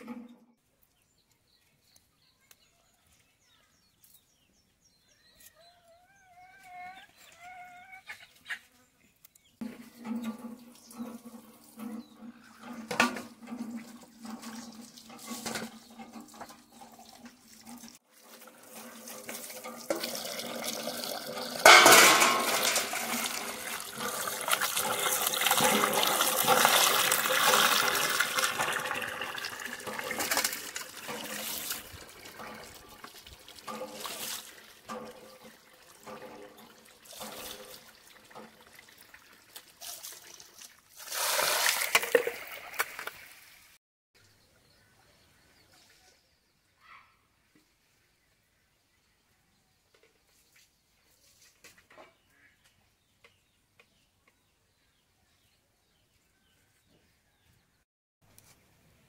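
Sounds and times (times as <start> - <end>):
water pouring and splashing: 9.6 - 43.8.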